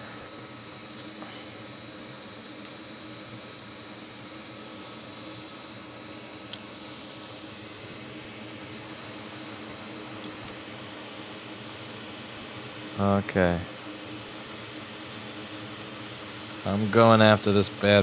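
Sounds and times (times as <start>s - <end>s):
air blowing hiss: 6.7s - 18.0s.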